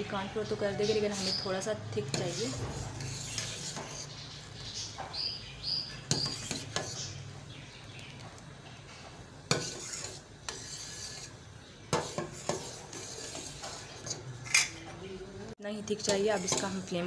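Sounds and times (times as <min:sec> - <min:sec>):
spoon scraping steel pot: 0:00.7 - 0:04.2, 0:05.9 - 0:07.2, 0:09.5 - 0:14.8, 0:15.9 - 0:17.0.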